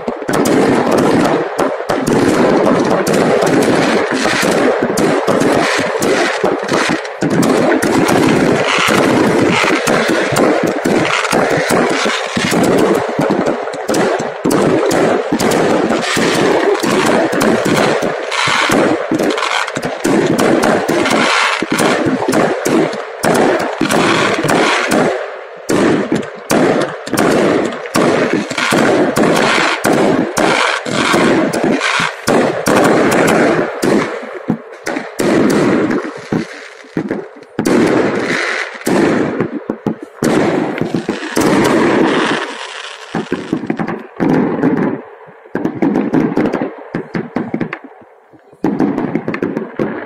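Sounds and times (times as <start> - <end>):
fireworks bangs and crackles: 0.0 - 50.0.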